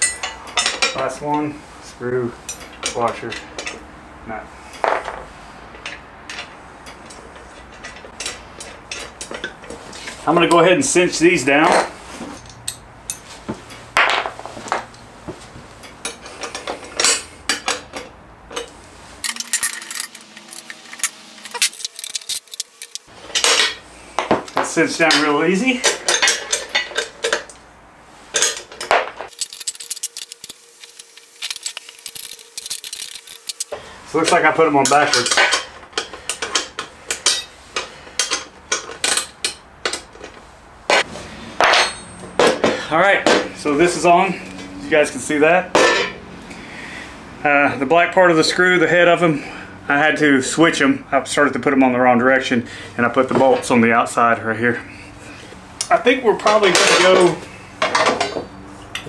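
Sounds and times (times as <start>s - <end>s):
bolts and nuts clinking on steel: 0.0s - 1.5s, 2.4s - 3.9s, 4.7s - 15.1s, 15.7s - 27.6s, 28.2s - 44.7s, 55.8s - 59.0s
scraping rustles: 28.1s - 39.4s.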